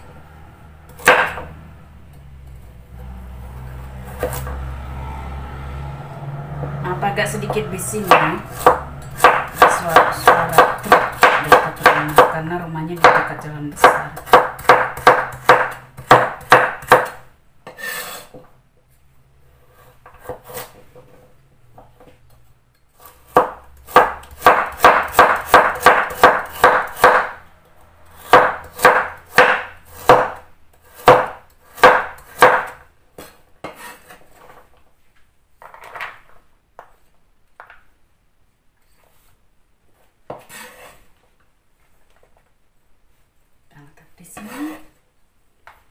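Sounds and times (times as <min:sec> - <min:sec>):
knife chopping on wooden board: 0:00.9 - 0:01.6, 0:07.4 - 0:12.4, 0:13.0 - 0:18.4, 0:20.0 - 0:20.8, 0:23.0 - 0:27.4, 0:28.2 - 0:34.6, 0:40.2 - 0:41.0.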